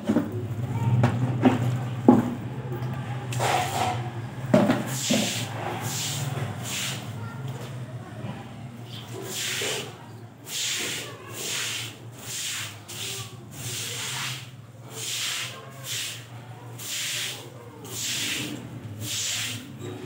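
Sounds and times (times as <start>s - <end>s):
broom sweeping wet concrete: 3.4s - 4.0s, 4.8s - 7.2s, 9.1s - 19.8s.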